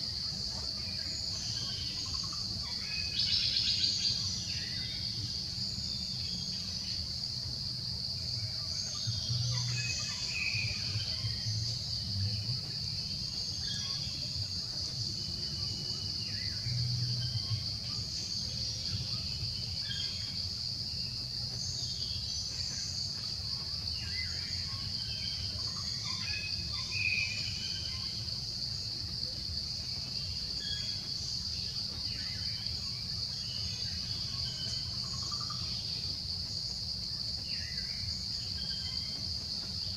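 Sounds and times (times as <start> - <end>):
insect chorus droning: 0.0 - 39.9.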